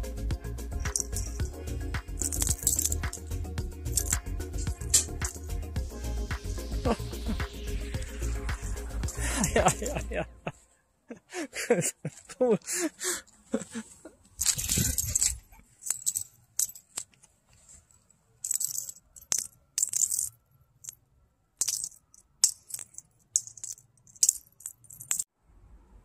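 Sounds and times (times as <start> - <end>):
small object rattling: 0.8 - 5.6, 8.0 - 10.0, 14.4 - 17.3, 18.4 - 21.0, 21.6 - 25.3.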